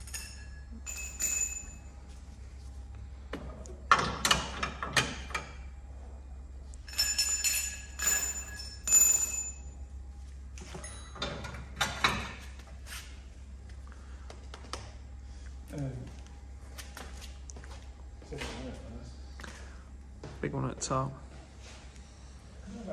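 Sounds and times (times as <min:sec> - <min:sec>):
metal parts and tools clanking: 0:00.0 - 0:01.9, 0:06.8 - 0:09.7, 0:10.6 - 0:12.6
ringing metallic clink: 0:00.0 - 0:01.9, 0:06.8 - 0:09.8.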